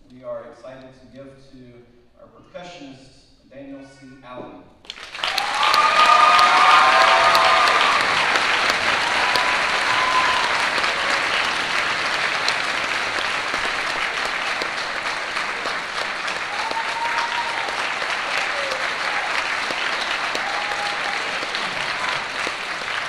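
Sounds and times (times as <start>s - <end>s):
audience applauding: 4.9s - 23.0s
voices whooping and cheering: 5.2s - 12.6s, 14.4s - 23.0s.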